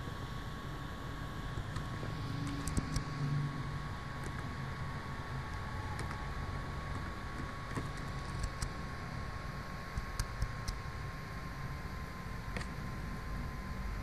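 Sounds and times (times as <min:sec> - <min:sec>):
faint high whine: 0:00.0 - 0:14.0
low hum and hiss: 0:00.0 - 0:14.0
keyboard and mouse clicks: 0:01.7 - 0:03.1, 0:06.9 - 0:08.7, 0:10.0 - 0:10.8.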